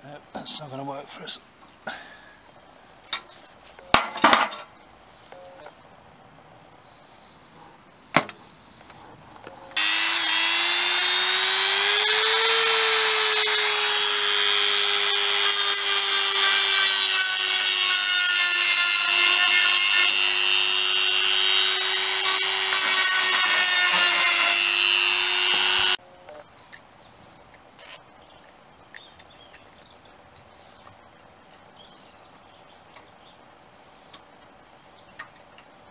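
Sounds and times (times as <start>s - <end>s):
electric drill whining into steel: 9.8s - 26.0s.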